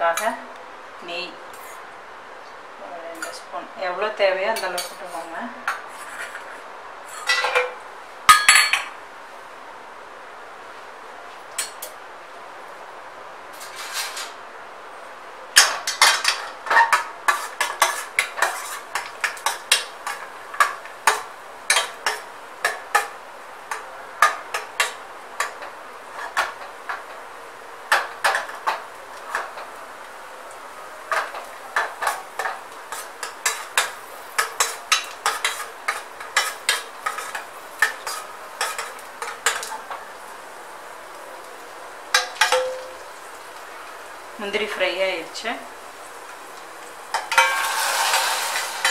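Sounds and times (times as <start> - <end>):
metal spoon scraping a pan: 4.6 - 7.6, 15.6 - 23.1, 31.1 - 39.9, 47.1 - 48.9.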